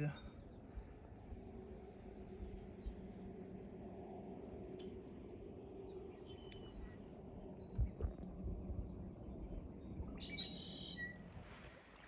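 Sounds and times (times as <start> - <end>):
low background rumble: 0.0 - 12.0
birds chirping and calling: 9.8 - 11.2.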